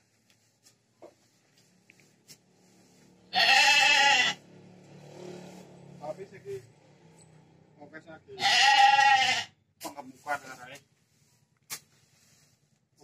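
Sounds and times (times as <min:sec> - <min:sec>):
sheep bleating: 0:03.3 - 0:04.4, 0:08.4 - 0:09.6
hoe scraping through grass: 0:05.0 - 0:06.0, 0:10.0 - 0:12.6.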